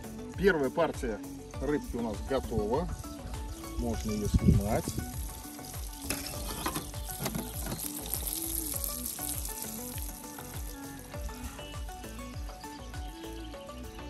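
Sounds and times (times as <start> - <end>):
fish frying in hot oil: 3.4 - 12.0.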